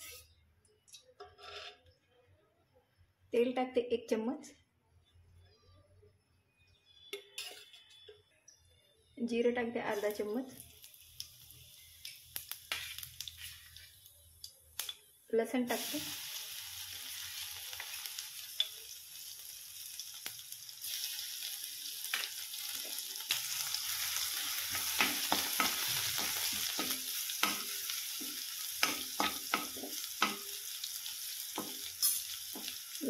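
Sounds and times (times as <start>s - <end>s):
metal spoon scraping a pan: 1.2s - 1.9s, 7.0s - 8.2s, 12.7s - 13.9s, 24.1s - 30.6s, 31.6s - 32.8s
garlic sizzling in hot oil: 9.8s - 15.0s, 15.6s - 33.0s.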